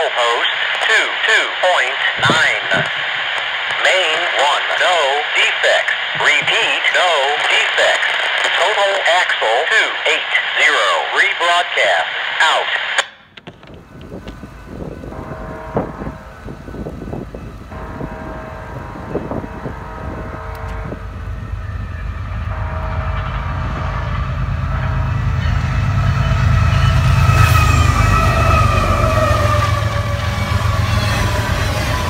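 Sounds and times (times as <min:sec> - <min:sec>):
rumble of engines and wheels: 0:13.3 - 0:32.0
locomotive horn blasts: 0:14.7 - 0:32.0.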